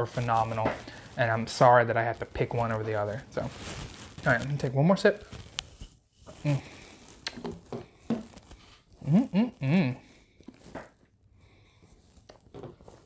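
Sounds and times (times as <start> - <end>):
man humming mmm: 6.4 - 6.7, 9.0 - 10.1.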